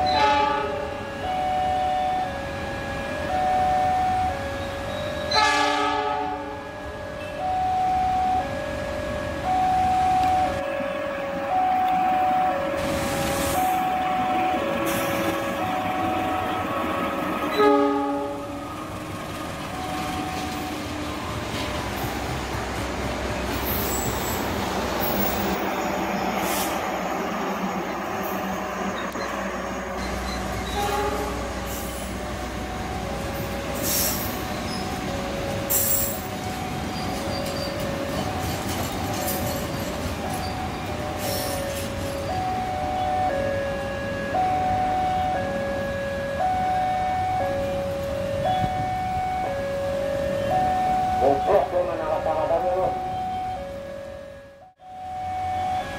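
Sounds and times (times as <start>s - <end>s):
locomotive horn: 0.0s - 1.2s, 4.2s - 7.5s, 17.5s - 18.7s, 30.4s - 32.0s
two-tone electronic alarm: 0.0s - 12.8s, 13.5s - 16.7s, 19.6s - 22.1s, 34.4s - 55.9s
train rumbling past: 0.0s - 55.9s
wheels squealing: 23.4s - 26.8s, 33.8s - 42.2s.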